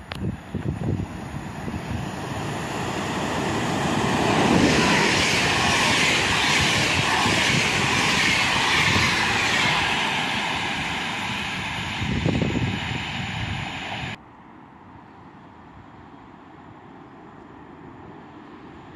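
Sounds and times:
train passing at speed: 0:00.0 - 0:14.2.

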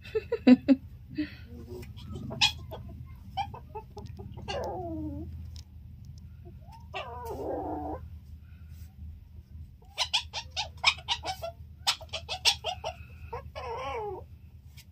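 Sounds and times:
steady low hum: 0:00.0 - 0:10.8
harsh rough animal call: 0:01.7 - 0:03.5.

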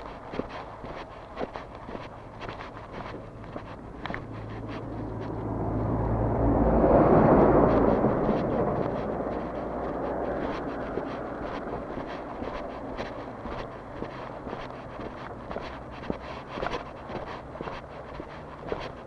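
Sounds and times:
vehicle passing close by: 0:00.0 - 0:19.0.

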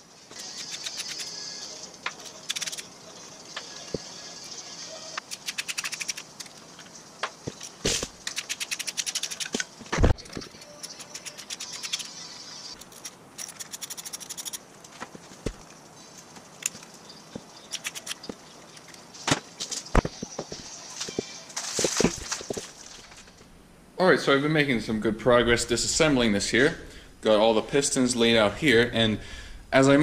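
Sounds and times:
socket ratchet clicking: 0:00.4 - 0:01.3, 0:02.2 - 0:02.8, 0:05.3 - 0:06.5, 0:08.3 - 0:09.6, 0:10.6 - 0:12.1, 0:12.8 - 0:14.6, 0:17.7 - 0:18.2.

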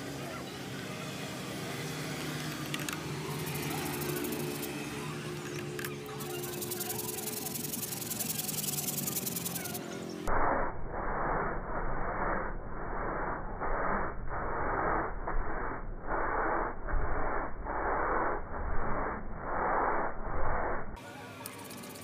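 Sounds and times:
toothbrush scrubbing fabric: 0:03.4 - 0:04.7, 0:06.2 - 0:09.8.

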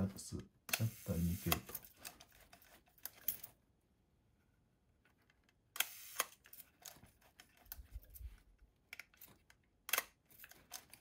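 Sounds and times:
camera shutter clicks: 0:05.8 - 0:06.4
shutter escapement buzzing: 0:05.8 - 0:06.5.

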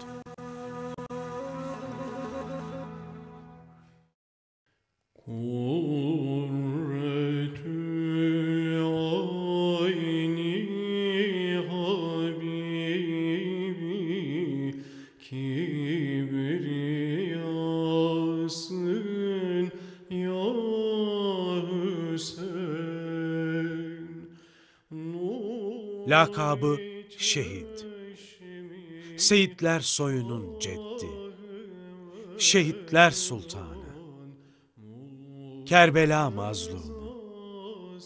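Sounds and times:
man chanting: 0:25.3 - 0:38.0.

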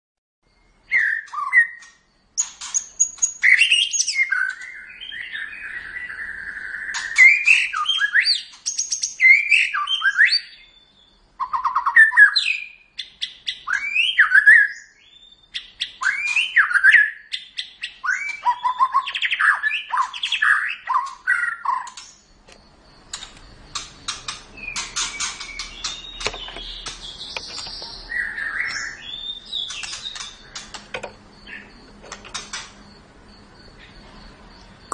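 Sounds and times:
bird singing whistled phrases: 0:00.8 - 0:22.1, 0:24.6 - 0:30.3
bird rattling clicks: 0:32.0 - 0:32.8.

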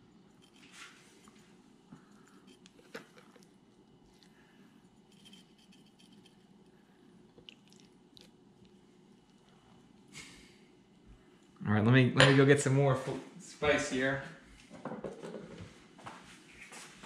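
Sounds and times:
spice shaken: 0:04.9 - 0:06.7.

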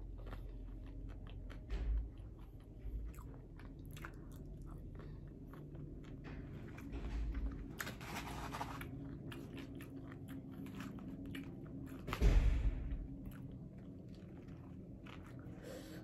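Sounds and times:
person chewing food: 0:00.0 - 0:12.2, 0:13.1 - 0:16.0
thump and rustle: 0:12.1 - 0:13.0.

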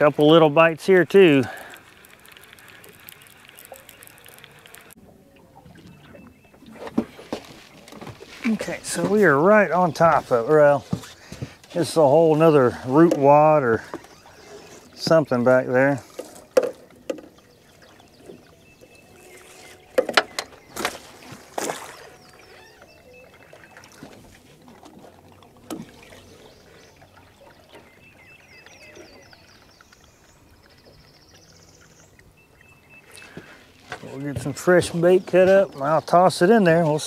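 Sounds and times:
water lapping: 0:00.0 - 0:37.0
bird chirping: 0:01.2 - 0:06.8, 0:12.0 - 0:24.1, 0:25.8 - 0:37.0
knocks and clatter of bait handling: 0:10.0 - 0:14.2, 0:16.0 - 0:17.4, 0:19.9 - 0:22.0.

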